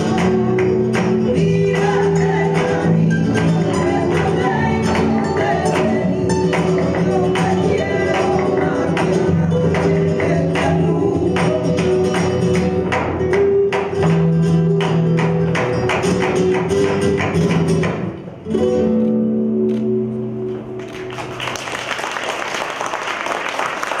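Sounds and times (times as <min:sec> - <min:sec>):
flamenco guitar: 0:00.0 - 0:24.0
applause: 0:20.8 - 0:24.0.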